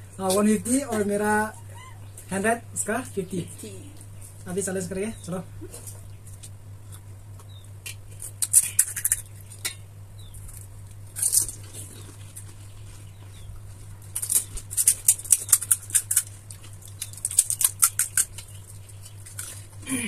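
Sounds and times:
steady low hum: 0:00.0 - 0:20.0
crisp shells crunching: 0:10.3 - 0:13.0, 0:13.8 - 0:19.8.

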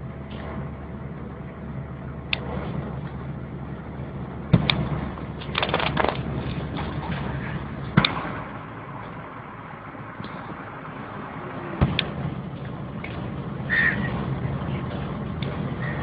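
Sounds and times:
car engine and road rumble: 0:00.0 - 0:16.0
clicks and rattles: 0:05.4 - 0:06.9.

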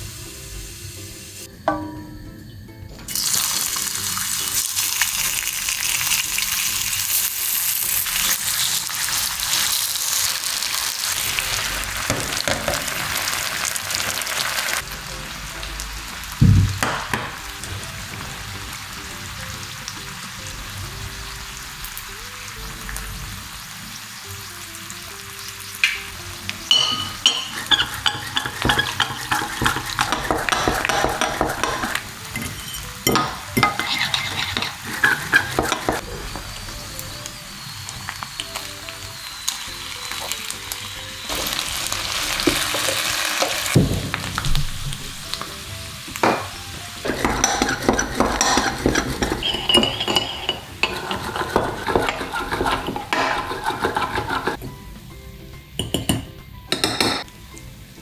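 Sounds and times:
potato slices sizzling in oil: 0:00.0 - 0:02.3, 0:03.1 - 0:54.6
whisk rattling against ceramic bowl: 0:26.7 - 0:36.0, 0:47.1 - 0:54.6.

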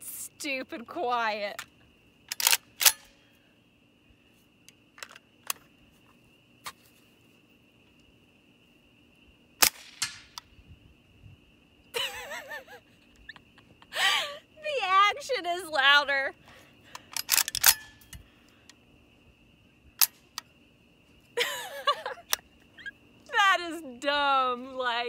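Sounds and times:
suppressed rifle shots: 0:09.6 - 0:10.4
woman laughing: 0:11.9 - 0:15.2, 0:21.4 - 0:23.8.

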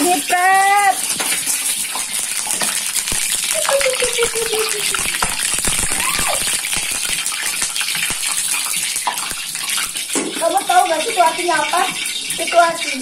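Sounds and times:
hot oil sizzling and popping: 0:00.0 - 0:13.0.

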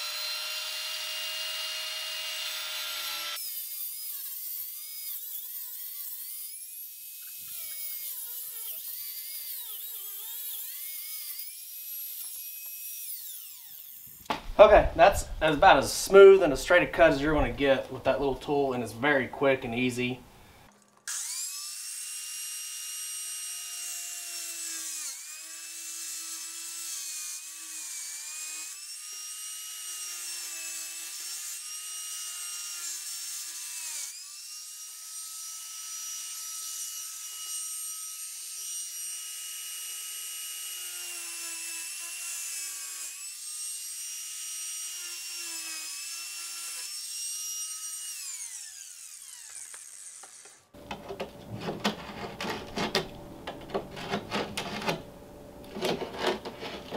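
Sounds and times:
diamond-blade saw whining: 0:00.0 - 0:14.2, 0:21.1 - 0:50.8.

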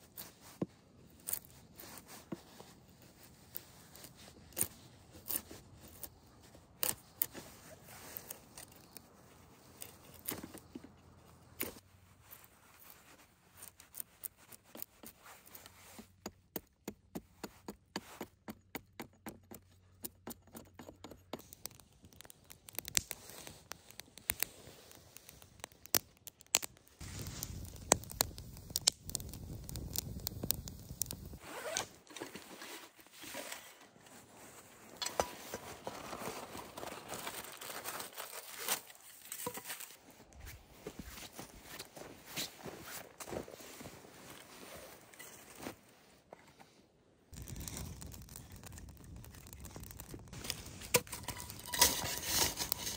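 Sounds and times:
footsteps crunching in snow: 0:34.1 - 0:45.9
knife scraping wooden stick: 0:50.4 - 0:52.9.

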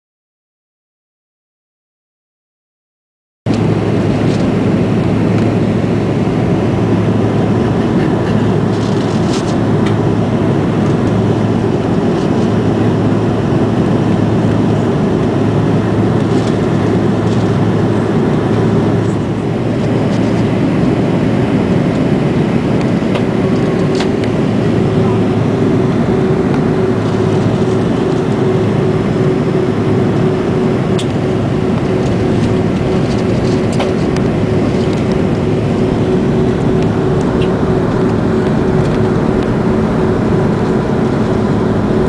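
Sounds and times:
airflow past fuselage: 0:03.5 - 0:42.0
jet engines roaring: 0:03.5 - 0:42.0
steady low hum: 0:03.5 - 0:42.0.

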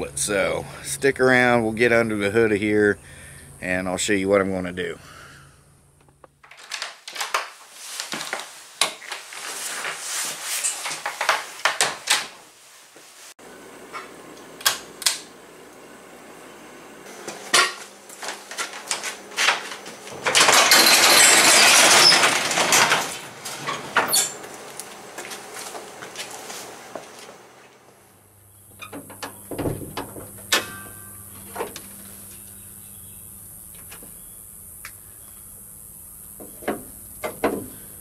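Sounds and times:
rough metal rattling: 0:20.2 - 0:23.8
metal items clinking: 0:20.2 - 0:24.4.

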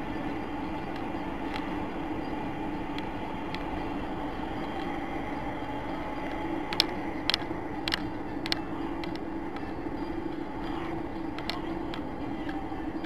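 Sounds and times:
moving vehicle noise: 0:00.0 - 0:13.0
sharp clicks: 0:06.2 - 0:09.7, 0:10.6 - 0:12.6.

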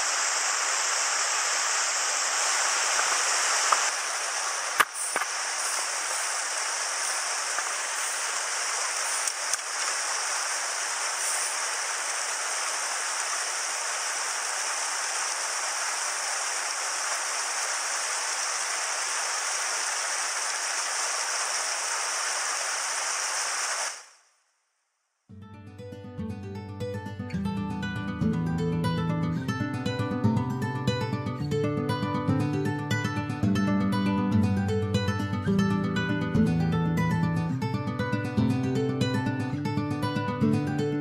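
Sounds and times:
stream rushing over boulders: 0:00.0 - 0:24.1.

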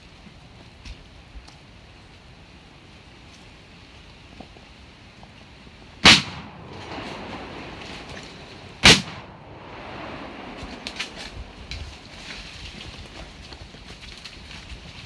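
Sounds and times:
loud gunshots with echo: 0:06.0 - 0:11.6.

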